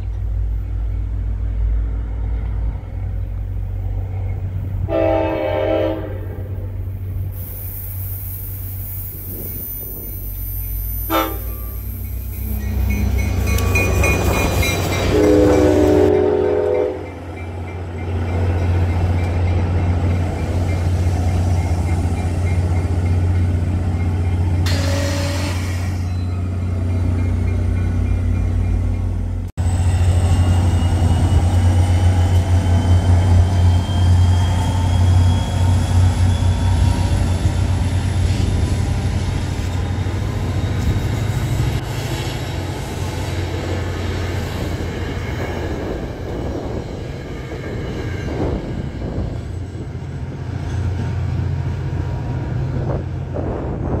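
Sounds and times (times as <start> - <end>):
diesel locomotive engine rumble: 0.0 - 54.0
train wheels rumbling: 0.0 - 54.0
train horn blast: 4.8 - 6.6, 11.1 - 11.8, 15.0 - 17.1, 24.7 - 26.0.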